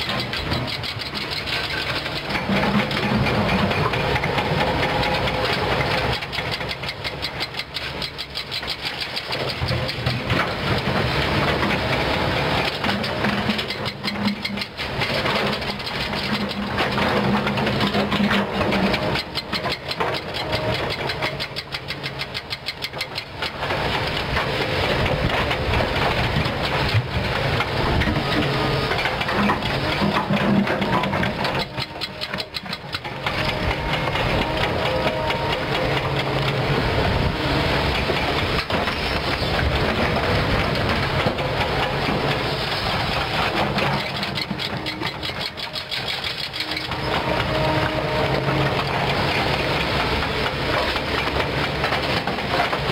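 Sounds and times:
engine idling with rapid ticking: 0.0 - 52.9
excavator diesel engine running: 0.0 - 52.9.

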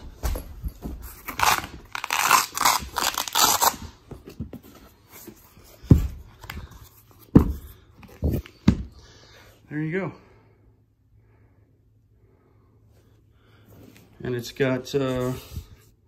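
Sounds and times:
fabric case tearing open: 1.3 - 4.0.

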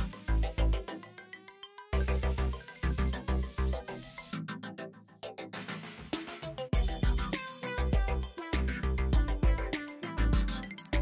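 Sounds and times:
rising synth tone: 0.0 - 4.4
electronic music with bass beat: 0.0 - 11.0.

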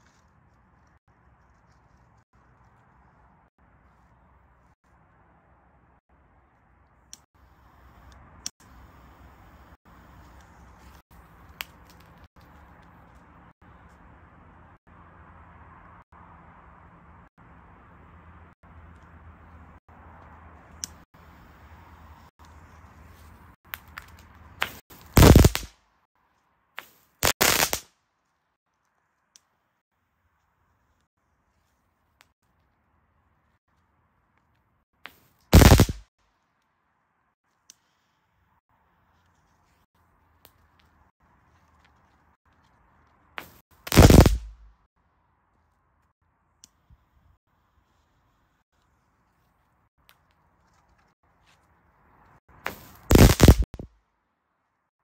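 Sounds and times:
firework popping: 24.6 - 25.7, 26.8 - 27.9, 35.1 - 36.1, 43.4 - 44.7, 52.6 - 53.9
firework crackling burst: 25.0 - 25.7, 27.2 - 27.8, 35.5 - 36.0, 43.4 - 44.6, 52.7 - 53.8.

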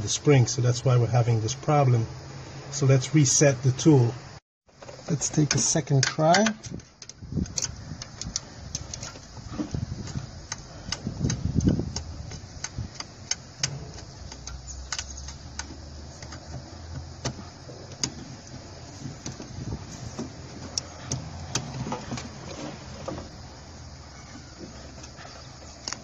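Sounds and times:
metal tool clicks and taps: 5.4 - 9.3, 10.1 - 18.2.

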